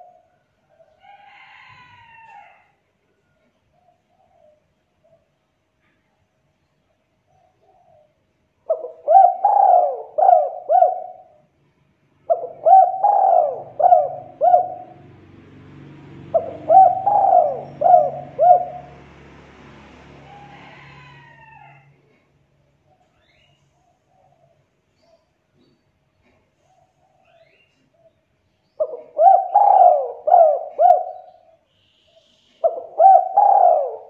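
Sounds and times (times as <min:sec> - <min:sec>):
dove cooing: 0:07.4 - 0:11.4, 0:12.2 - 0:15.2, 0:16.0 - 0:19.2, 0:28.8 - 0:34.0.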